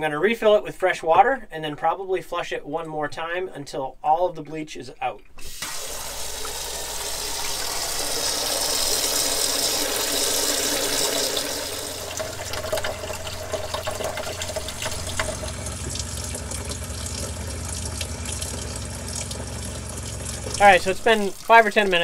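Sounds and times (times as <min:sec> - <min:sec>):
faucet water splashing in sink: 0:05.4 - 0:22.0
water pump humming: 0:05.4 - 0:22.0.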